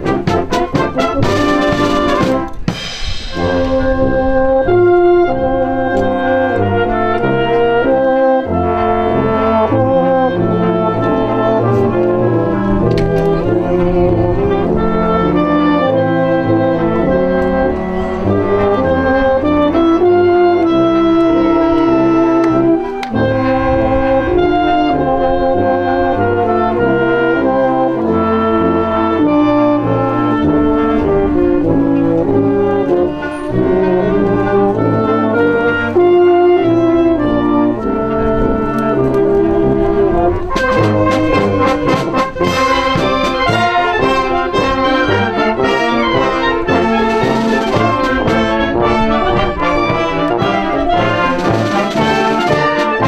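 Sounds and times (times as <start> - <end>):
brass band playing: 0.0 - 53.0
percussion with cymbals: 1.3 - 3.8.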